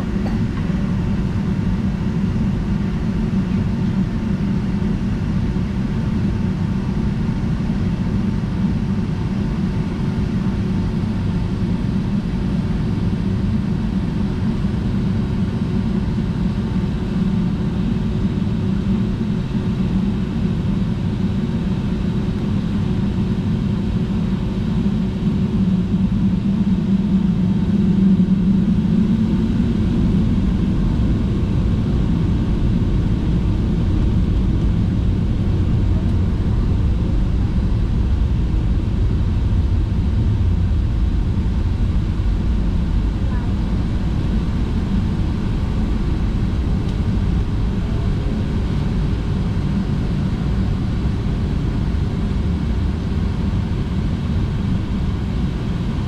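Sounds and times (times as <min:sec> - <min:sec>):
faint steady hum: 0:00.0 - 0:56.0
jet engine rumble: 0:00.0 - 0:56.0.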